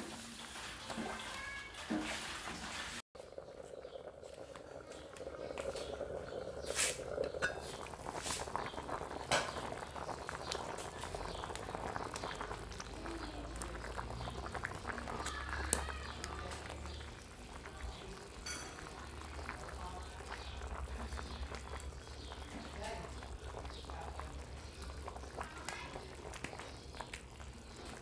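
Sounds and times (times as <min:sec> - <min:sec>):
soup bubbling at a boil: 0:00.0 - 0:28.0
metal ladle stirring: 0:00.4 - 0:08.6.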